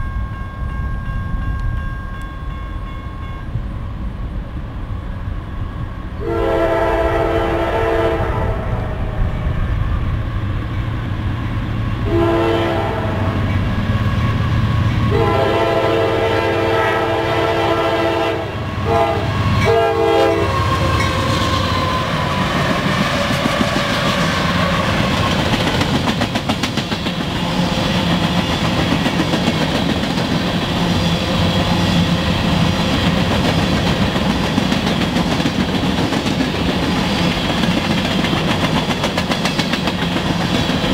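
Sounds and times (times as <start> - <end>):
locomotive whine: 0.0 - 40.9
train air horn blasts: 6.2 - 9.2, 12.0 - 13.4, 15.0 - 25.2
wheels clacking over rail joints: 20.6 - 40.9.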